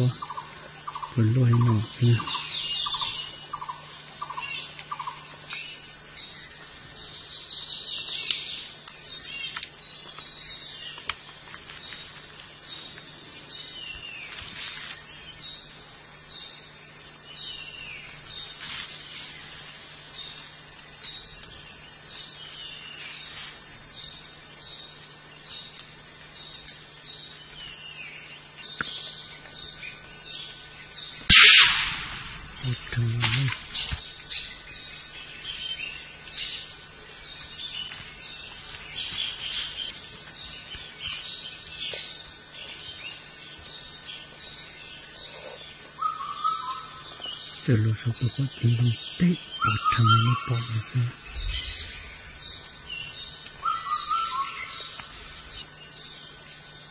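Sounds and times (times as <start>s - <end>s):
birds whistling: 0.0s - 11.1s, 27.4s - 55.8s
insect drone: 0.0s - 56.9s
rifle shot: 31.3s - 32.6s.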